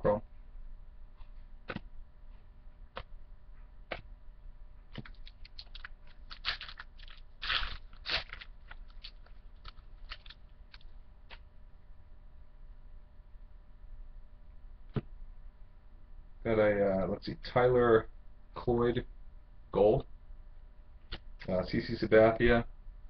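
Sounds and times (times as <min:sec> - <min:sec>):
wrapper crinkling: 0:05.0 - 0:10.9.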